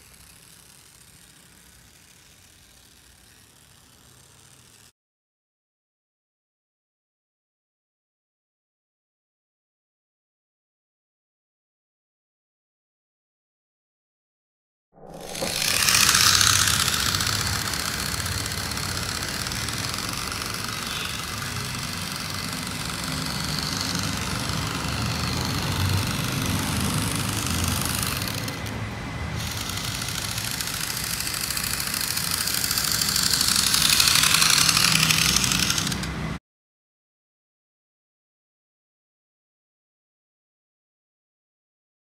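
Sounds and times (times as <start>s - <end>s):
toy truck motor whine: 0.0s - 4.9s, 15.0s - 36.4s
tyres on gritty road: 15.3s - 36.4s.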